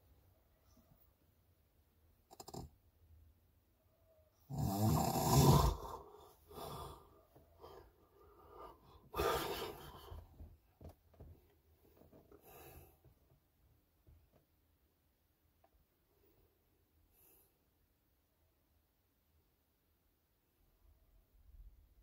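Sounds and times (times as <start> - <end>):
person snoring: 4.5 - 7.1, 8.7 - 10.1.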